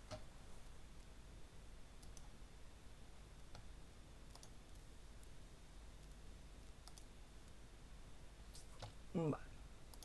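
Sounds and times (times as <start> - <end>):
computer mouse clicks: 2.0 - 2.3, 4.3 - 5.4, 6.8 - 7.6.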